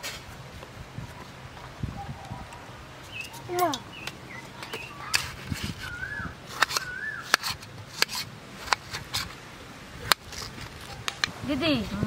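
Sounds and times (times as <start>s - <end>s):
bird chirps: 2.0s - 7.6s.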